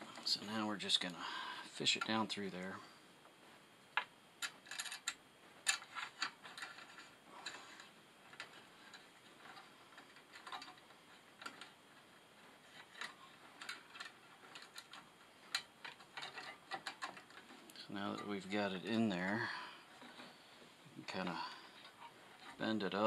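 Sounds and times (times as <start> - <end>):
cable clicking and scraping on metal: 4.4 - 11.8, 12.4 - 20.4, 21.1 - 23.0.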